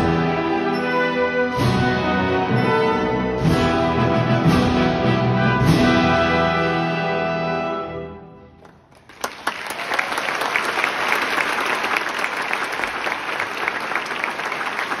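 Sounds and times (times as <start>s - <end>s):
audience applause: 8.6s - 15.0s.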